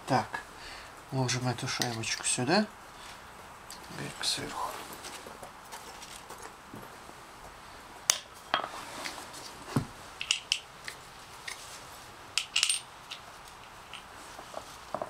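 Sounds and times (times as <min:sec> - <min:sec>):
small metal parts clinking: 0:12.4 - 0:14.1.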